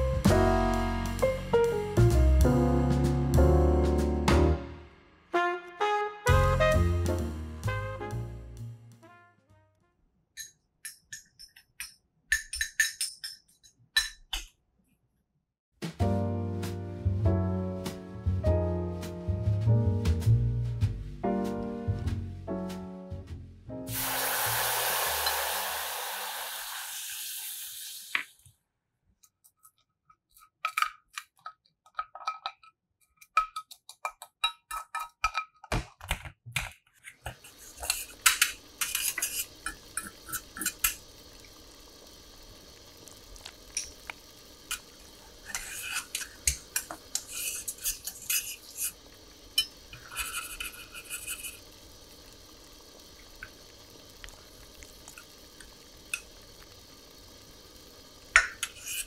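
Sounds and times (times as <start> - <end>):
metal spoon clinking against pan: 10.4 - 14.2, 49.6 - 50.5
syrup simmering: 23.9 - 28.1, 37.3 - 59.0
water hissing in hot sugar: 23.9 - 28.4, 37.2 - 59.0.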